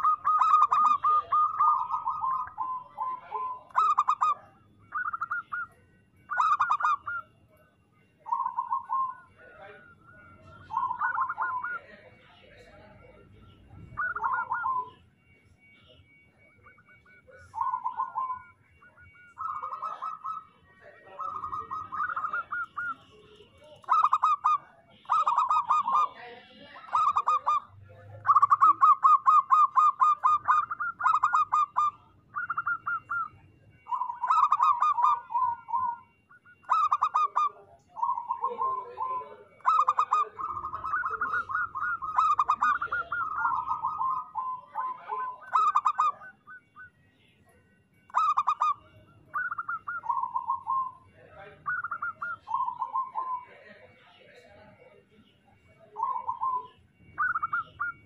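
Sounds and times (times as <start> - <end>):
dove cooing: 0.0 - 53.8, 55.6 - 58.0.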